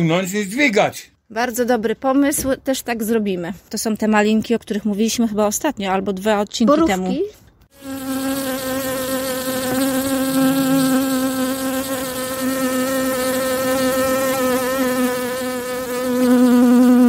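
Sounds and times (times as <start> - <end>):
insect buzzing: 7.7 - 17.0.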